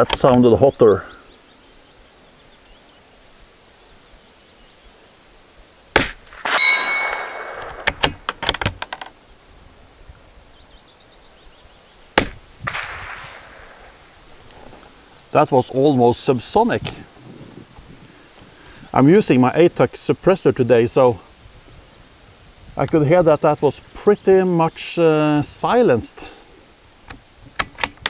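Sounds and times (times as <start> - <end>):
suppressed rifle shot: 6.0 - 8.7, 12.2 - 14.4
metallic clang of steel plate: 6.3 - 8.0
rifle bolt clicks: 6.3 - 8.9, 27.1 - 28.0.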